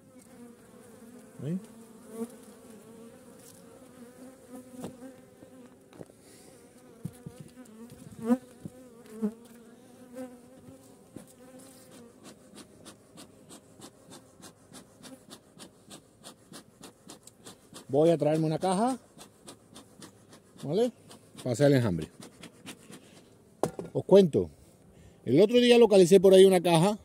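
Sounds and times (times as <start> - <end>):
bees flying past: 0.0 - 23.4
bee colony buzzing: 0.0 - 23.9
faint regular ticks: 10.6 - 23.3.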